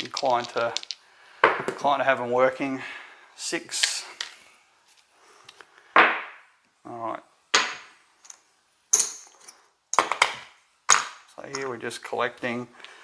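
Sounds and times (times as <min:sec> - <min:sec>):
dice and chips clacking: 0:00.0 - 0:01.7.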